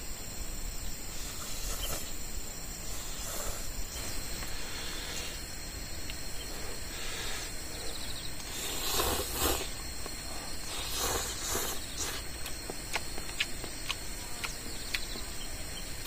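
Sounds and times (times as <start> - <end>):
insects chirring: 0.0 - 16.0
person slurping noodles: 8.5 - 9.8, 10.6 - 12.3.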